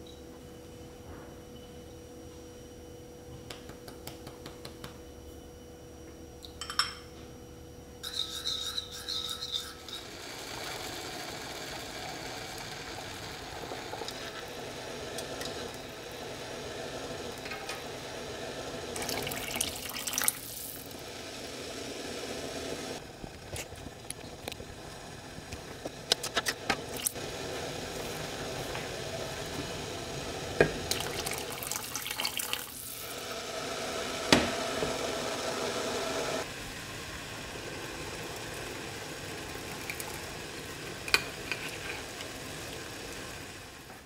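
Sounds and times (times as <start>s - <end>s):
metal spoon clinking on bowl: 6.6s - 7.0s
water hissing and bubbling in pot: 8.0s - 44.0s
water pouring into pot: 9.8s - 24.6s, 26.7s - 34.3s, 37.0s - 43.8s.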